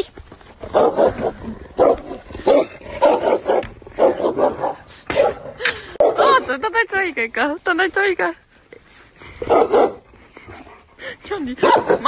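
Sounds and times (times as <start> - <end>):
dogs barking and growling: 0.6 - 6.6, 9.3 - 10.9, 11.5 - 12.0.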